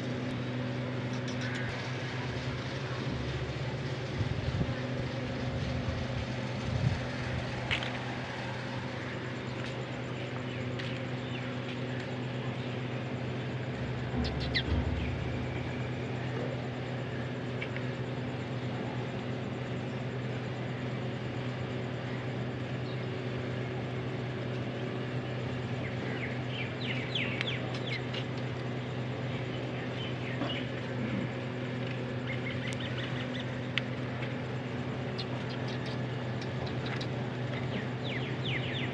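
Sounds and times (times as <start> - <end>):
low mechanical hum: 0.0 - 38.9
low rumble: 12.2 - 17.9.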